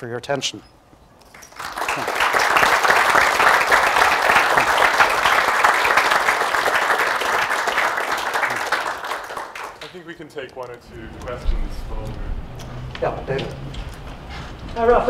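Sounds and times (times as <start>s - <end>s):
audience applauding: 1.3s - 10.2s.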